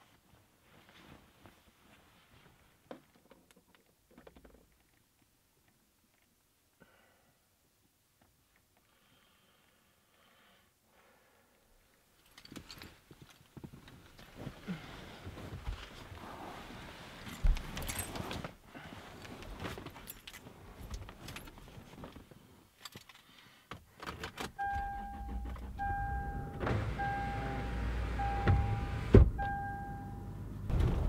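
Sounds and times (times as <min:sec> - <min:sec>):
bedding rustling: 0:12.4 - 0:22.6
dashboard warning chime beeping: 0:24.6 - 0:30.5.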